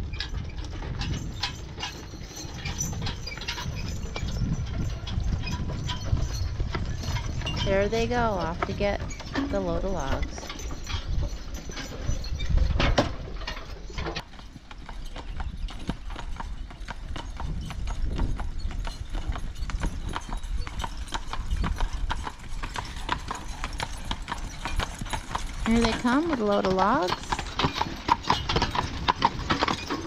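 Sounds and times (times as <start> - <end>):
hooves clip-clopping on pavement: 0.0 - 30.0.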